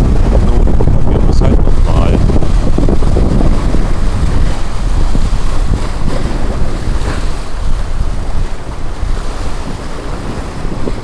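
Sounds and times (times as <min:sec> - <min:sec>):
heavy low rumble: 0:00.0 - 0:06.9
waves splashing against boulders: 0:00.0 - 0:11.0
wind buffeting microphone: 0:00.0 - 0:11.0.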